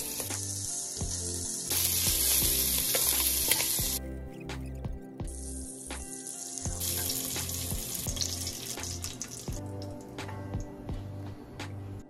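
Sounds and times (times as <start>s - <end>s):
sausage sizzling in oil: 0.0s - 4.0s, 5.3s - 10.1s.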